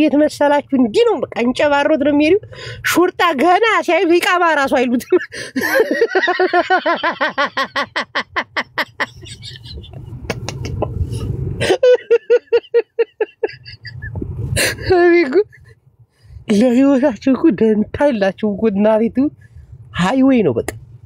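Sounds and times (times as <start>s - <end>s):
low rumbling: 0.0s - 21.0s
person laughing hard: 5.1s - 15.7s.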